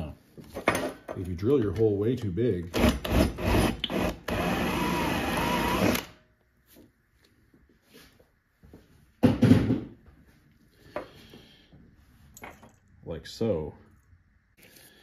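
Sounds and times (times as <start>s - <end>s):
power drill boring through metal lid: 2.8s - 6.1s.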